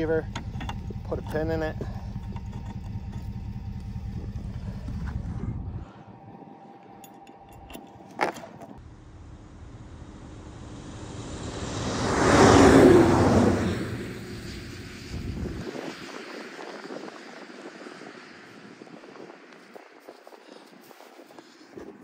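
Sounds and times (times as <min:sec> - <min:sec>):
vehicle passing on snowy road: 0:00.0 - 0:07.0, 0:08.8 - 0:22.0
low engine rumble: 0:00.0 - 0:20.0.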